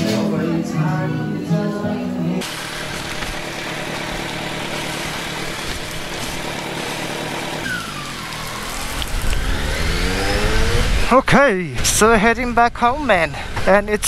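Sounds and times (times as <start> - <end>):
rain hissing: 2.4 - 10.2
motorcycle engine: 2.4 - 11.2
wind: 2.4 - 14.0.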